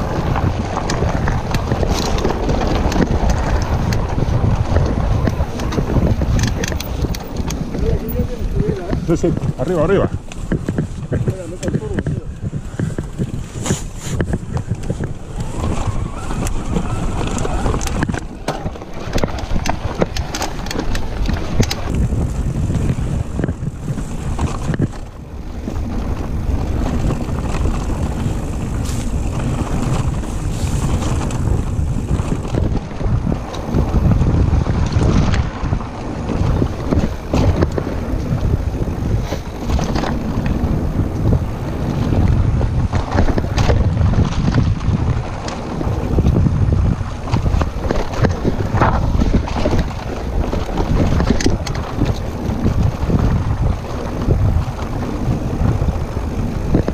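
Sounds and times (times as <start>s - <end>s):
bike rattling and knocking: 0.0s - 56.9s
tyres crunching on stones: 0.0s - 56.9s
wind noise on microphone: 0.0s - 56.9s.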